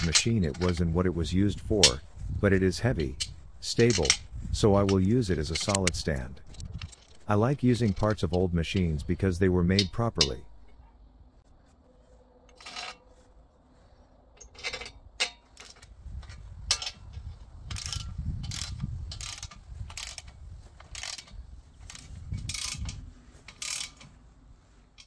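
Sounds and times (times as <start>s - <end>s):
metal clicks of bolts: 0.0s - 1.0s, 1.6s - 2.1s, 2.9s - 10.8s, 12.5s - 13.0s, 14.4s - 24.2s
ratchet wrench clicking: 14.5s - 24.1s.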